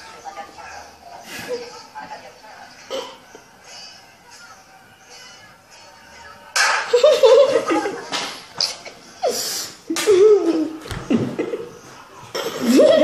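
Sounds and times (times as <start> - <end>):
boys laughing: 6.9 - 13.0.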